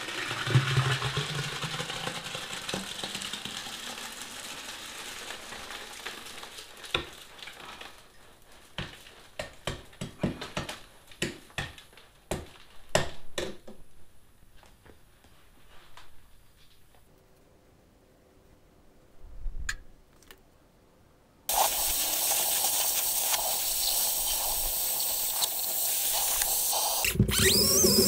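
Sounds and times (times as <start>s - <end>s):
wet concrete sliding: 0.0s - 8.2s.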